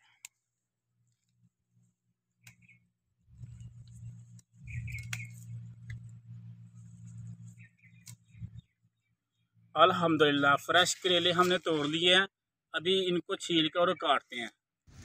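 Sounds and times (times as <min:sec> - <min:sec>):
low rough rumble: 0:03.2 - 0:09.8
rustling of vines and leaves: 0:03.3 - 0:08.6, 0:10.7 - 0:12.1
faint bird chirps: 0:04.6 - 0:05.7.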